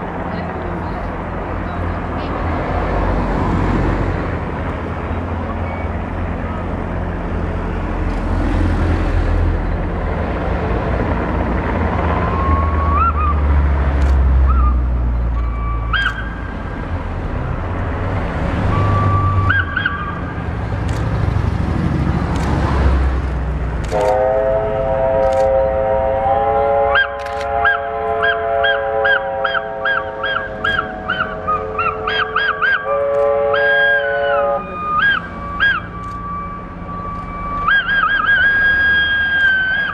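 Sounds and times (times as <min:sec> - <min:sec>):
steam locomotive rumble: 0:00.0 - 0:39.9
steam whistle: 0:23.9 - 0:35.9
short honking calls: 0:23.9 - 0:36.0.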